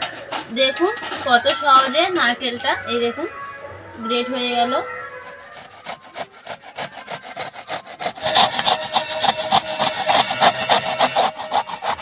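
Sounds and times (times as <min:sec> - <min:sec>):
coconut grating on metal grater: 0:00.0 - 0:02.2, 0:05.1 - 0:12.0.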